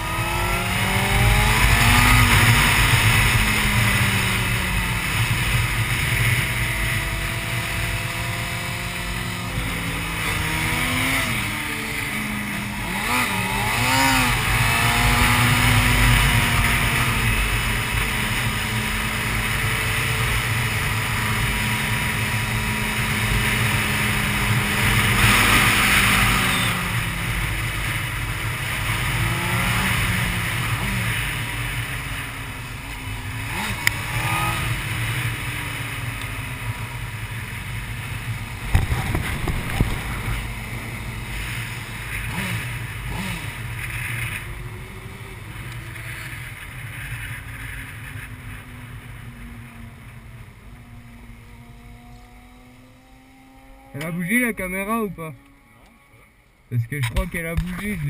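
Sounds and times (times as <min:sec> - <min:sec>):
motorcycle engine decelerating: 0:00.0 - 0:58.0
wind rushing past: 0:38.4 - 0:42.0.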